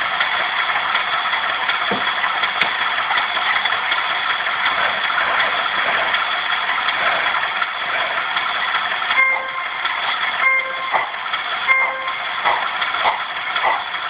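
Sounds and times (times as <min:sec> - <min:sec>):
model diesel engine idling: 0:00.0 - 0:14.0
high locomotive horn toot: 0:09.2 - 0:09.8, 0:10.4 - 0:11.0, 0:11.7 - 0:12.2.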